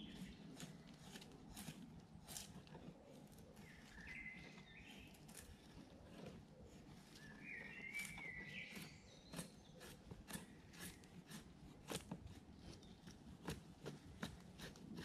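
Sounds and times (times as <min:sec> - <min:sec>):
knife scraping wood: 0:00.0 - 0:15.0
bird calling: 0:03.6 - 0:05.8, 0:06.4 - 0:10.0.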